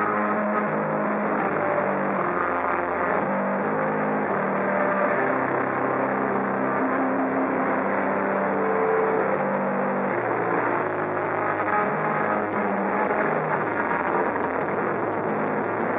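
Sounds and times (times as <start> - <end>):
bass guitar: 0.0 - 15.9
distorted electric guitars: 0.0 - 15.9
drums: 11.4 - 15.9.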